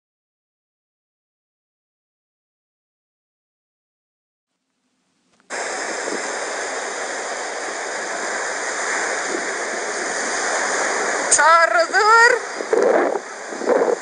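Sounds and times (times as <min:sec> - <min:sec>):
surf on shingle beach: 0:05.3 - 0:14.0.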